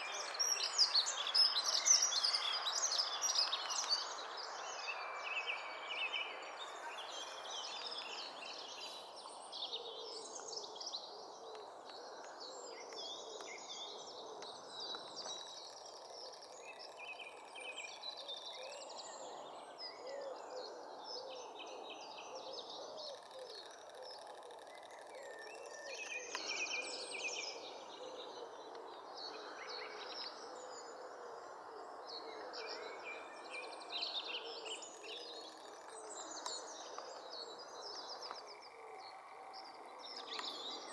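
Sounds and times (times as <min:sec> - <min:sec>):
small birds chirping: 0:00.0 - 0:19.2, 0:32.6 - 0:40.9.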